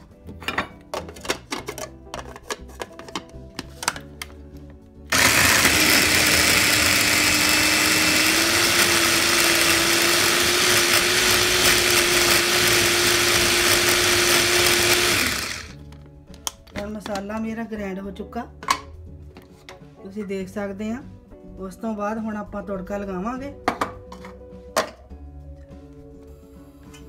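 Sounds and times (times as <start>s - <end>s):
food processor motor humming: 5.1s - 15.8s.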